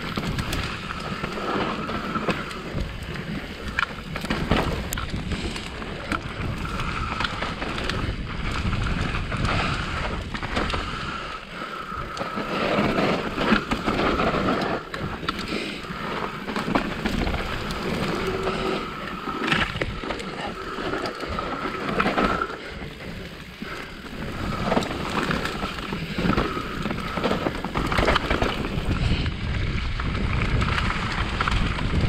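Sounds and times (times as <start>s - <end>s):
bike rattles and knocks: 0.0s - 32.0s
tyre noise on dirt: 0.0s - 32.0s
wind on microphone: 0.0s - 32.0s.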